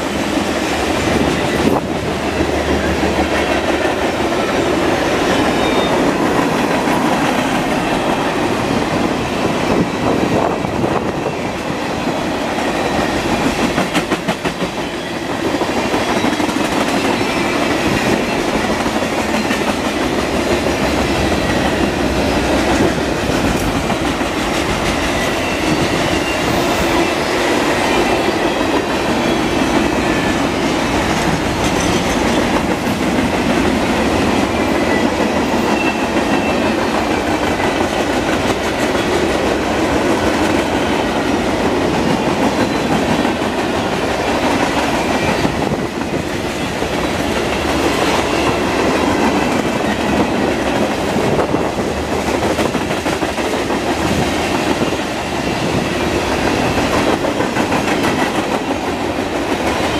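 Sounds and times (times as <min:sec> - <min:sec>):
steel wheels rumbling on rails: 0:00.0 - 0:59.9.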